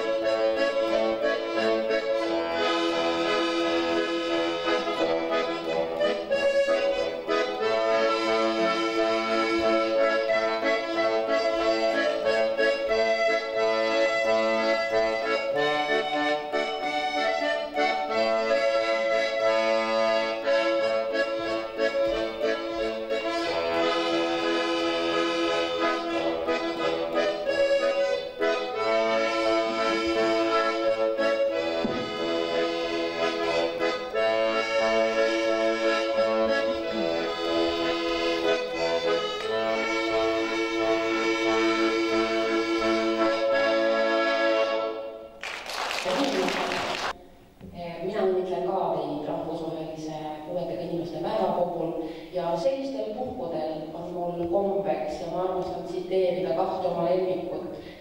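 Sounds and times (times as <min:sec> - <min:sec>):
accordion playing a tune: 0:00.0 - 0:47.4, 0:48.2 - 0:58.0.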